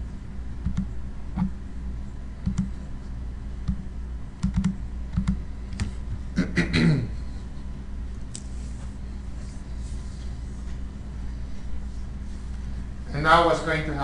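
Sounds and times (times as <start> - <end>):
low hum: 0.0 - 13.2
mouse and keyboard clicks: 2.4 - 2.7, 4.4 - 5.9.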